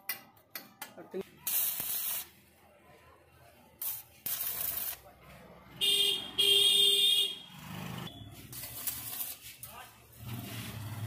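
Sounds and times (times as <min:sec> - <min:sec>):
welding arc hissing and crackling: 0:01.4 - 0:02.4, 0:03.8 - 0:05.0, 0:08.5 - 0:09.8.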